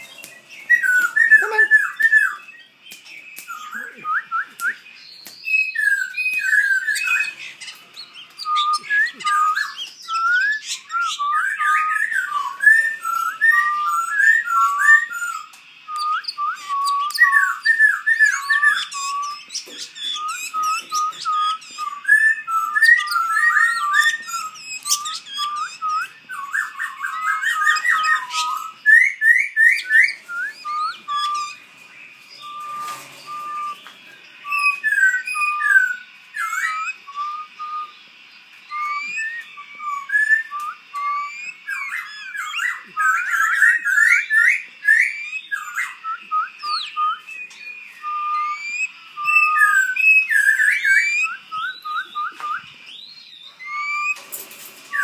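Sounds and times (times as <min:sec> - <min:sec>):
birds chirping and twittering: 0:00.0 - 0:55.0
songbirds singing: 0:00.0 - 0:55.0.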